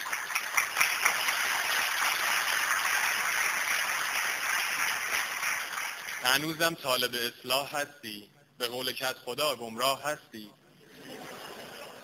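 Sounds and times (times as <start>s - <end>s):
audience applauding: 0.0s - 6.5s.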